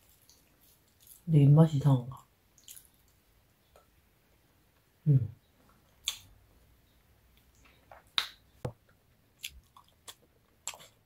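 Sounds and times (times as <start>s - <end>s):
wet mouth clicks of chewing: 2.6s - 3.2s, 6.0s - 6.3s, 9.4s - 11.0s.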